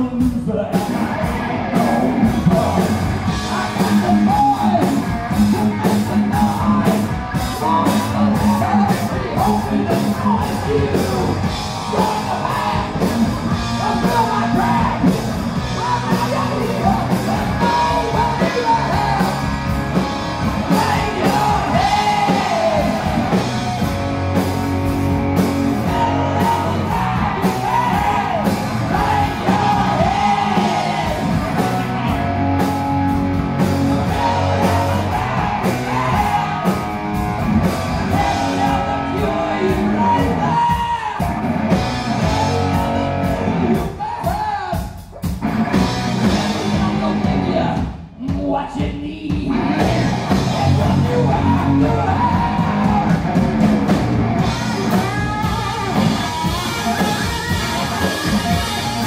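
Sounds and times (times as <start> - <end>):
electric guitar: 0.0 - 44.4, 45.2 - 48.0, 49.4 - 59.0
drum kit: 0.0 - 59.0
person singing into microphone: 13.7 - 19.5, 20.7 - 23.4, 25.8 - 31.4, 34.0 - 36.8, 38.0 - 41.2, 46.5 - 53.2.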